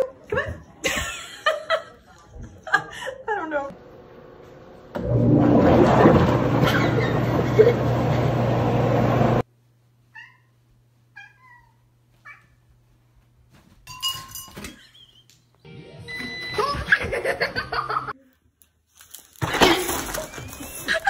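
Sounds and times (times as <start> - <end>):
cat meowing: 10.1 - 12.6.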